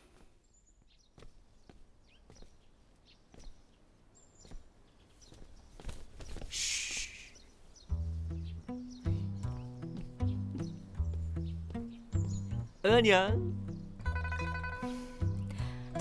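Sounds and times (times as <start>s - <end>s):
bird chirps: 0.0s - 15.7s
brief hiss: 6.4s - 7.4s
background music with low notes: 7.9s - 16.0s.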